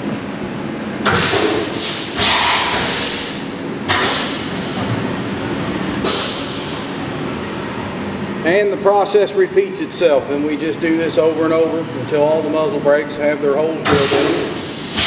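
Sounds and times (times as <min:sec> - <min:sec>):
milling machine humming: 0:00.0 - 0:15.0
coolant spray hissing: 0:13.9 - 0:15.0.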